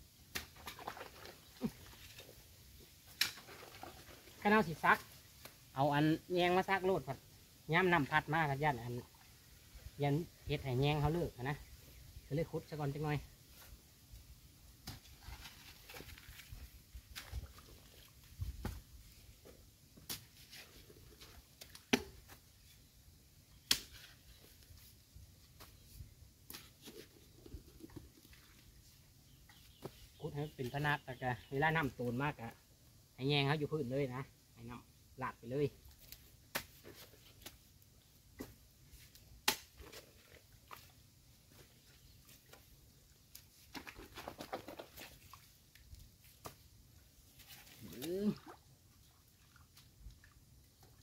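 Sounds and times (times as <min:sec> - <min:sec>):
spade chopping into muddy soil: 0:23.6 - 0:24.1, 0:36.5 - 0:37.6, 0:39.4 - 0:40.0
spade chopping into damp earth: 0:39.4 - 0:39.8.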